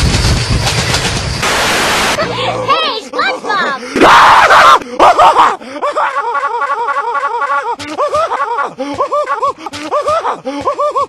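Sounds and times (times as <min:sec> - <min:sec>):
loud noisy burst: 0:00.0 - 0:02.4
cartoon character giggling: 0:05.0 - 0:11.0.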